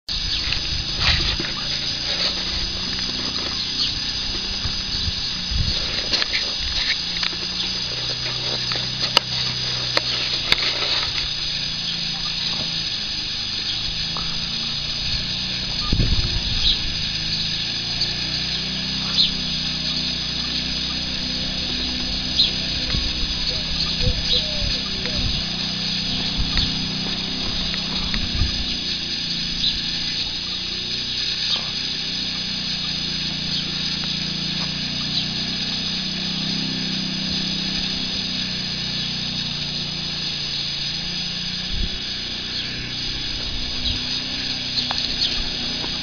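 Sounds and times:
sharp clicks: 0.2s - 32.4s.

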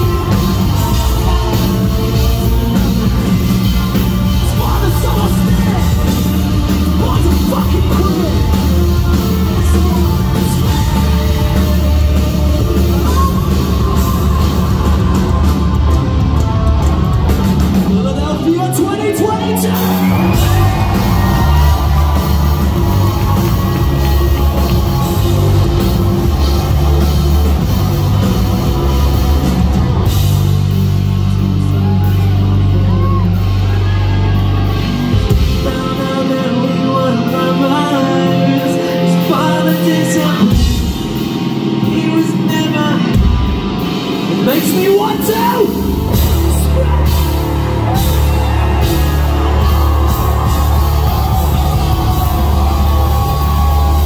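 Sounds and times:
person singing: 0.0s - 16.2s, 35.3s - 40.9s
live rock band: 0.0s - 54.0s.

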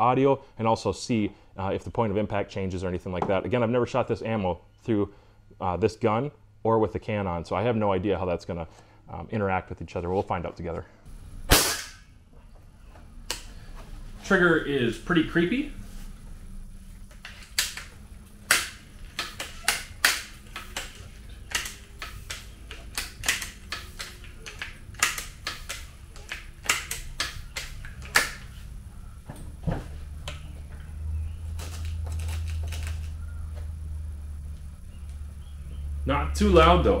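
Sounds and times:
steady low hum: 0.0s - 37.0s
air rifle pump clicks: 18.5s - 28.5s.

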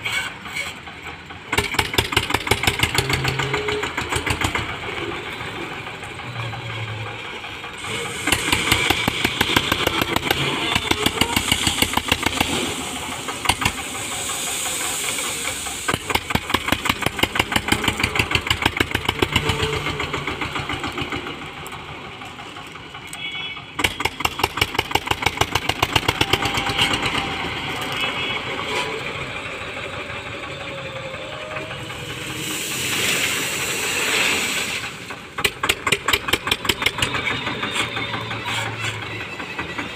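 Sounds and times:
tractor diesel engine chugging: 0.0s - 39.9s
gravel pouring from bucket: 11.4s - 17.4s, 32.1s - 35.2s.

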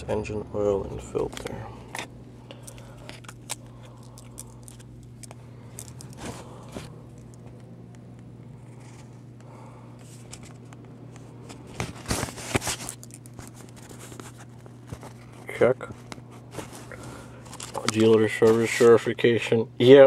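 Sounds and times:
steady low hum: 0.0s - 20.0s
paper pages rustling: 5.2s - 6.9s, 10.0s - 19.0s.

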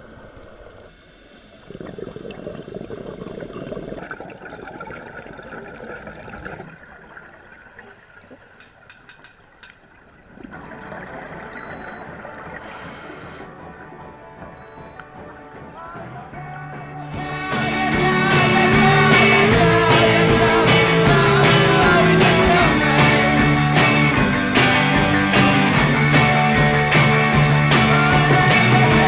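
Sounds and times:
rushing bubbling water underwater: 0.0s - 16.0s
sharp clicks: 8.6s - 9.9s.

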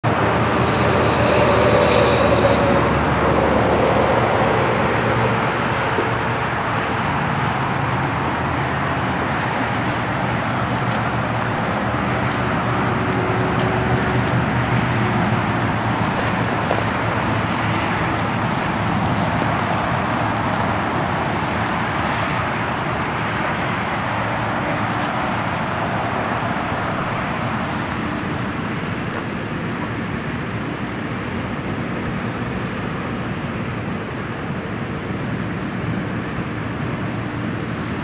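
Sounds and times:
insects chirping: 0.0s - 38.0s
even rushing noise: 0.1s - 29.0s.

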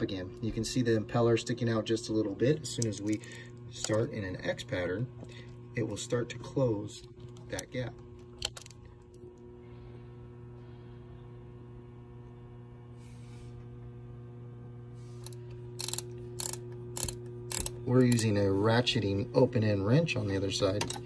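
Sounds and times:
steady low hum: 0.0s - 21.0s
ratcheting wrench clicking: 2.7s - 4.0s, 15.2s - 18.3s.

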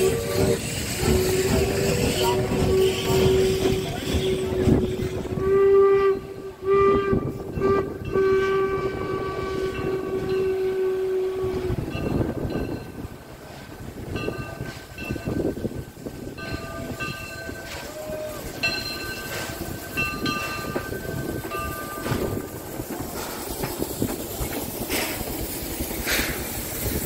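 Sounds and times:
steam locomotive whistle blasts: 0.0s - 12.4s, 16.7s - 22.6s.

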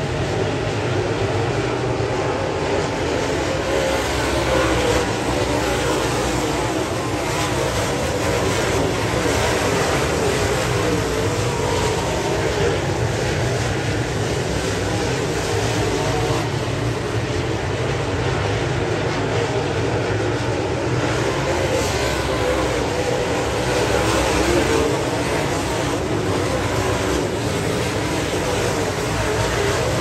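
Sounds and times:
race car engines at full throttle: 0.0s - 30.0s.

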